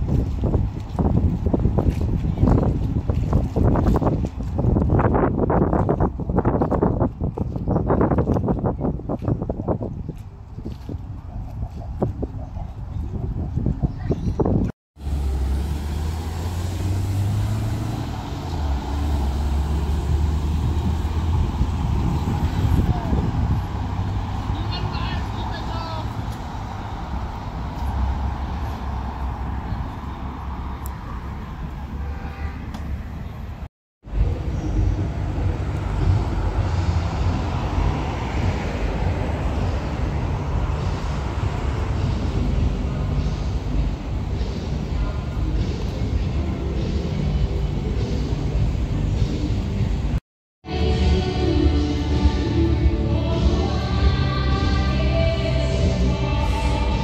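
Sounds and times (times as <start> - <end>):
street noise: 0.0 - 57.0
heavy vehicle engine hum: 15.0 - 57.0.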